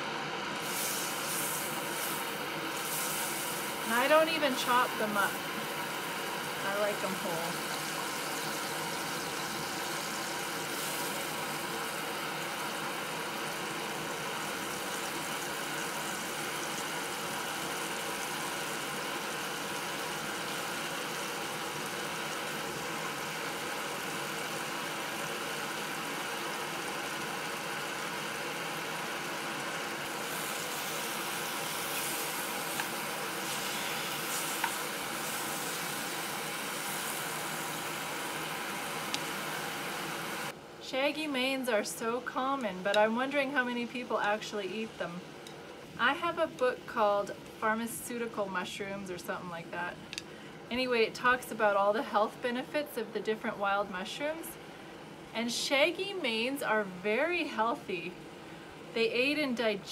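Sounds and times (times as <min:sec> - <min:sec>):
stove burner running: 0:00.0 - 0:59.9
mushrooms frying in grease: 0:00.5 - 0:40.5.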